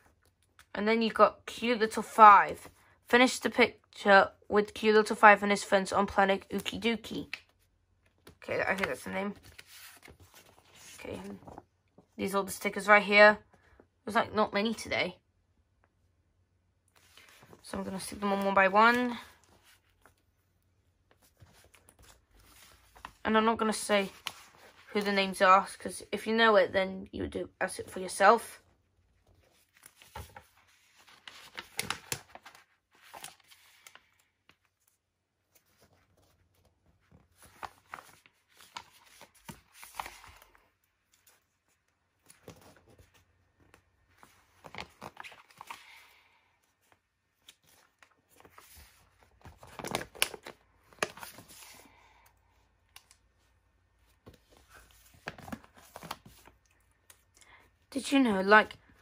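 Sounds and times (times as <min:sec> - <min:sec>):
paper sheet rustling: 0:08.6 - 0:11.7, 0:29.2 - 0:46.2, 0:46.8 - 0:51.9, 0:54.2 - 0:57.2.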